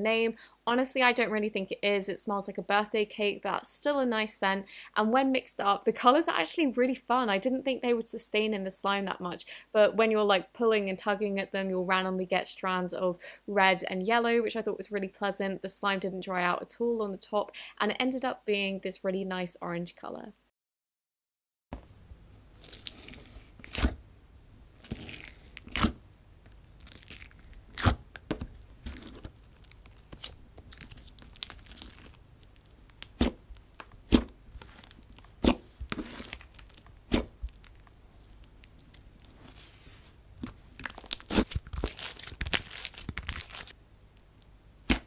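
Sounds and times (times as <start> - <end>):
slime squeezed by fingers: 34.1 - 37.8.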